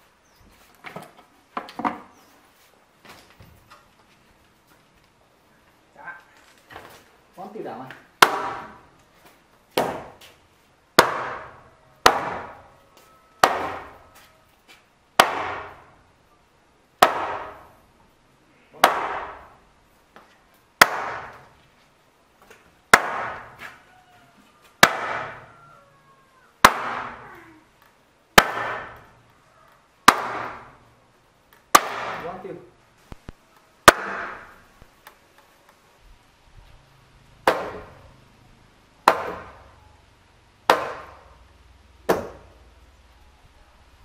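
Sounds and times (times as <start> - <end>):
mallet knocking timber beams: 8.2 - 8.8, 9.8 - 10.2, 11.0 - 12.7, 13.4 - 14.0, 15.2 - 15.9, 17.0 - 17.7, 18.8 - 19.6, 20.8 - 21.5, 22.9 - 23.7, 24.8 - 25.5, 26.6 - 27.2, 28.4 - 29.1, 30.1 - 30.8, 31.7 - 32.4, 33.8 - 34.6, 37.4 - 38.0, 39.0 - 39.6, 40.7 - 41.3, 42.1 - 42.5.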